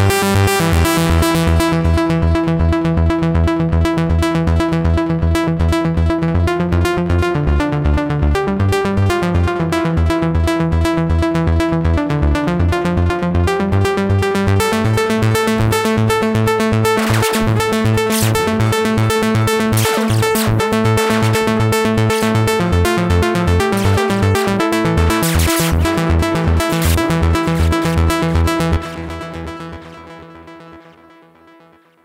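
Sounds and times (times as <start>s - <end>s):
pulsing synthesizer sequence: 14.4s - 31.1s.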